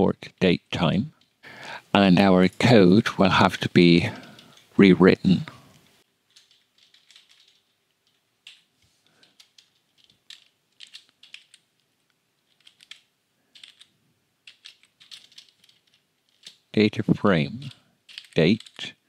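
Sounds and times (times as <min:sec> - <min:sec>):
keyboard typing: 0:09.2 - 0:11.6, 0:12.5 - 0:16.6.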